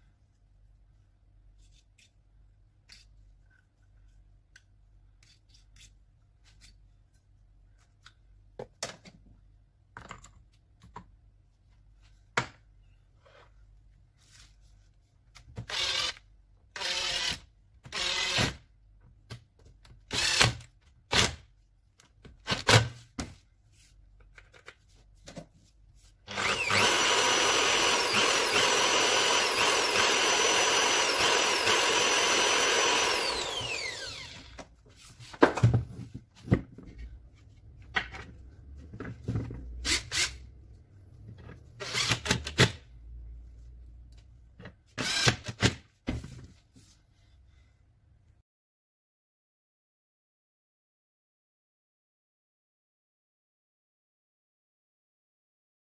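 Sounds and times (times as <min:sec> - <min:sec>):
motor winding down: 0:26.3 - 0:34.5
polisher motor whining: 0:26.3 - 0:34.5.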